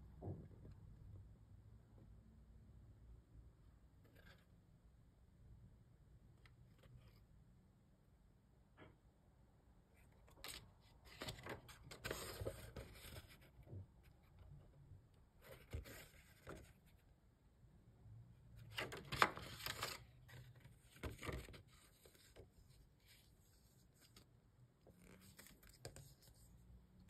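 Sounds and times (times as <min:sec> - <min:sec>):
paper booklet rustling: 0:10.1 - 0:13.8, 0:15.4 - 0:17.0, 0:18.6 - 0:26.6.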